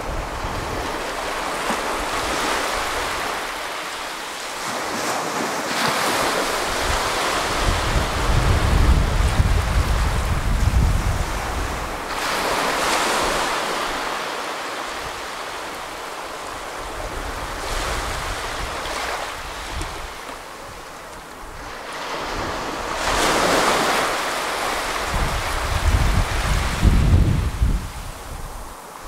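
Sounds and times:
small waves breaking on shore: 0:00.0 - 0:29.0.

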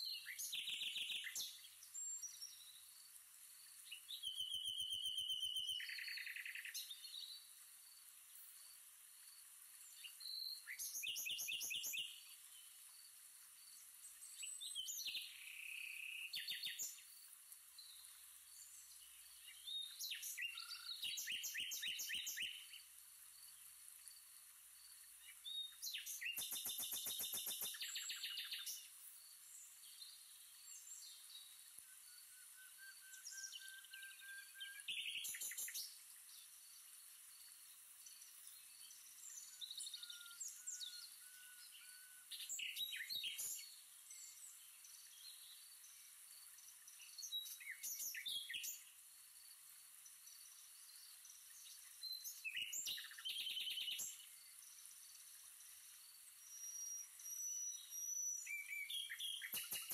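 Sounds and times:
steady outdoor hiss: 0:00.0 - 0:59.9
birds chirping: 0:25.4 - 0:28.9, 0:58.5 - 0:59.9.

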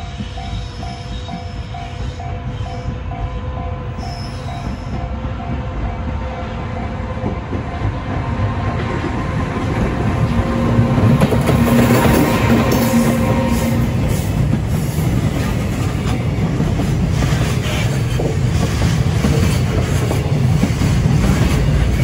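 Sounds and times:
freight train rumble and wheel noise: 0:00.0 - 0:22.0.

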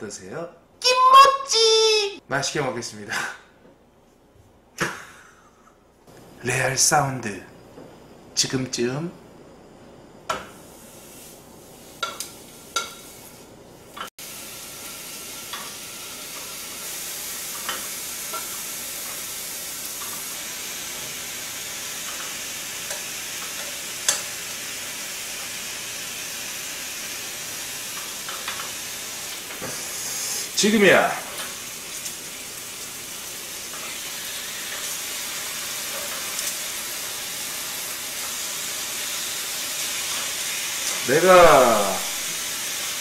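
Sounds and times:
pork sizzling in a frying pan: 0:10.3 - 0:43.0
tongs clicking against pan: 0:22.9 - 0:24.3.

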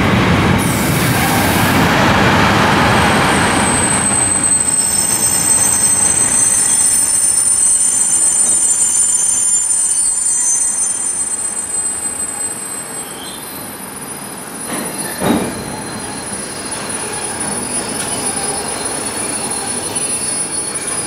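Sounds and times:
train rumble: 0:00.0 - 0:09.6
high-pitched train squeal: 0:02.6 - 0:21.0.

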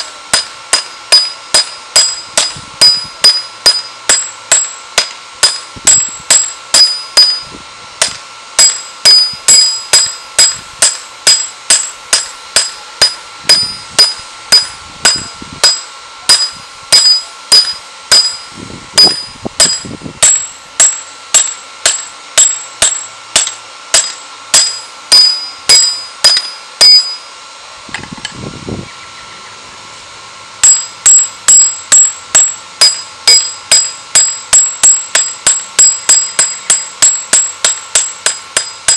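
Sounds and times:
hammer ringing on anvil: 0:00.0 - 0:27.3, 0:30.6 - 0:38.9.

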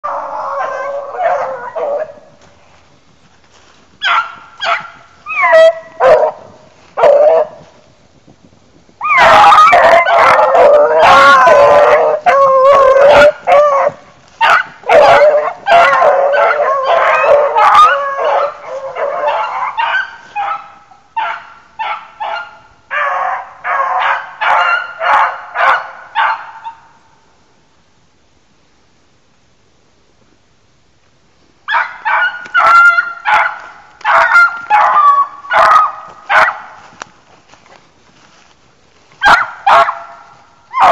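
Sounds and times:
pack of dogs baying: 0:00.0 - 0:02.3, 0:04.0 - 0:07.6, 0:09.0 - 0:26.8, 0:31.7 - 0:36.9, 0:39.2 - 0:40.9.

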